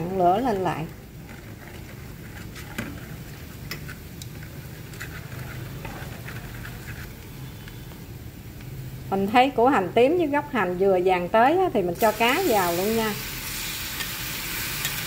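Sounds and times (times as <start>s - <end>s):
food frying gently in wok: 10.0s - 15.0s.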